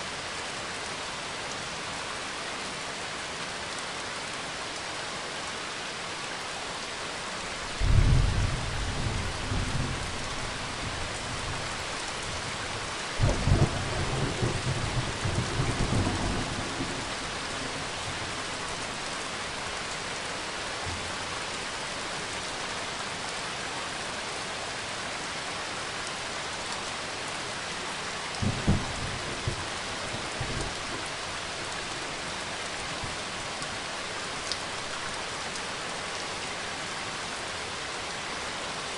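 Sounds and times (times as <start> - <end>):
rain falling: 0.0 - 38.9
low rolls of thunder: 7.8 - 11.6, 13.2 - 18.1, 28.4 - 31.1.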